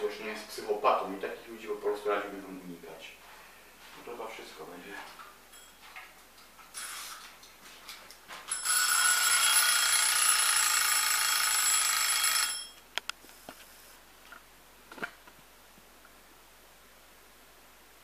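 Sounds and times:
bell ringing: 8.5 - 12.8.

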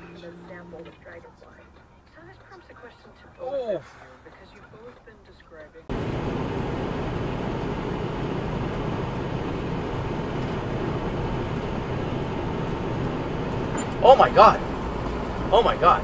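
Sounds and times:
vehicle road noise: 0.0 - 16.0
low hum: 5.9 - 16.0.

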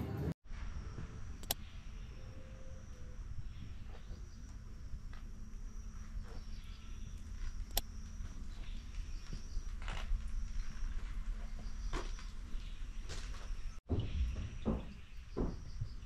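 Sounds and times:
sharp clicks: 1.4 - 1.6, 7.6 - 7.9.

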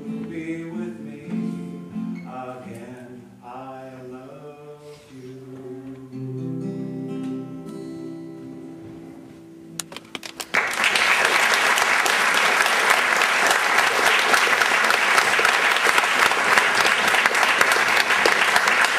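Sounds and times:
acoustic guitar chord: 4.4 - 9.8
audience applause: 10.1 - 18.9.

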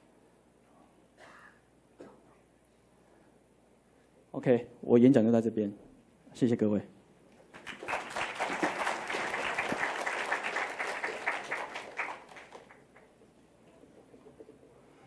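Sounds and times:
audience applauding: 7.5 - 13.2.

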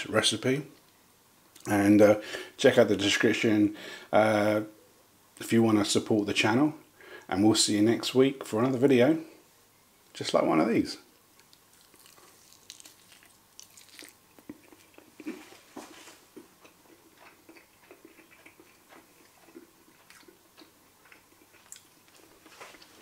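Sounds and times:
man chewing crunchy chicken: 11.4 - 23.0.

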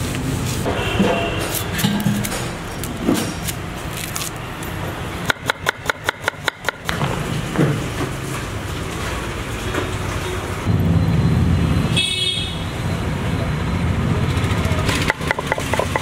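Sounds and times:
steady background din: 0.6 - 3.8
knife chopping on wooden board: 15.0 - 16.0.

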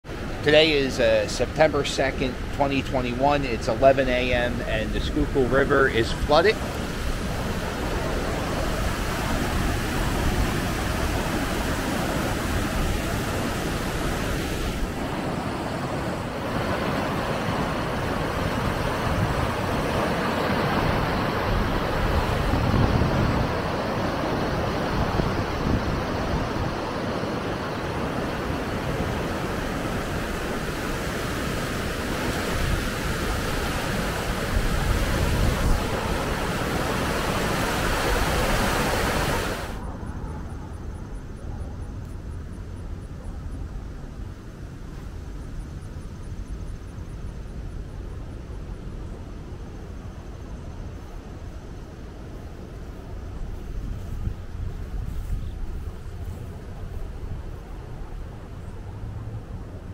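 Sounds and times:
river water rushing and churning: 0.1 - 39.9.

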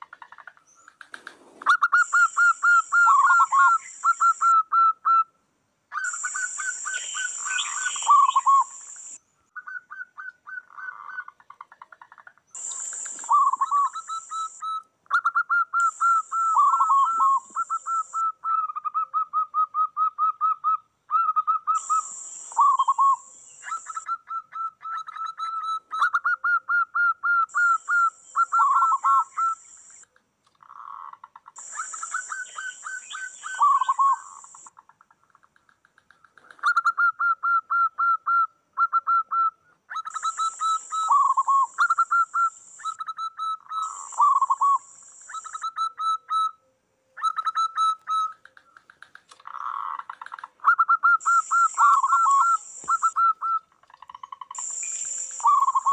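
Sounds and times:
doves cooing: 47.2 - 53.6, 55.4 - 55.9.

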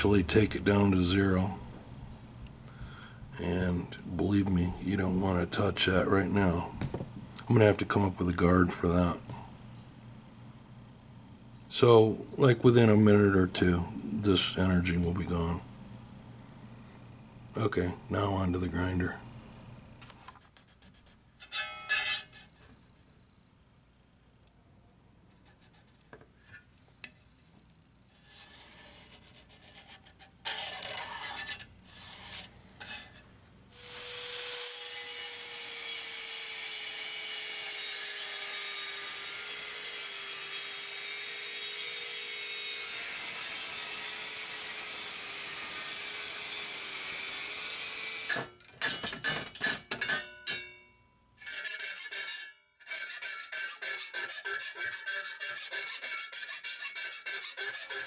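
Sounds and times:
steady scraping: 28.1 - 33.3, 51.4 - 58.0
angle grinder cutting metal: 33.7 - 50.6, 51.4 - 58.0.

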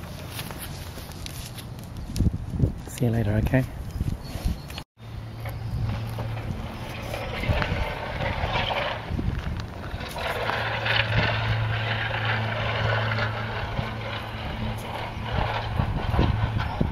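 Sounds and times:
distant engine droning: 5.0 - 16.9.

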